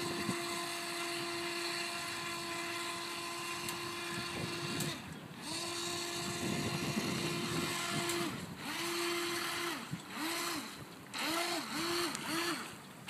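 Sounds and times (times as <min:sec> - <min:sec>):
toy boat motor whining: 0:00.0 - 0:13.0.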